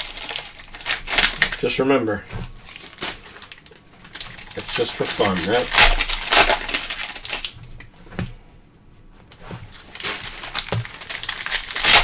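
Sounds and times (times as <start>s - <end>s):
card wrappers crinkling: 0.0s - 1.8s, 2.6s - 7.6s, 9.7s - 12.0s.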